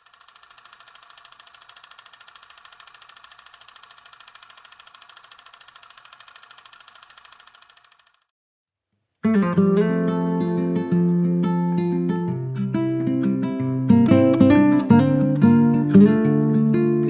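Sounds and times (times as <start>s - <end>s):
film projector clatter: 0.0s - 8.3s.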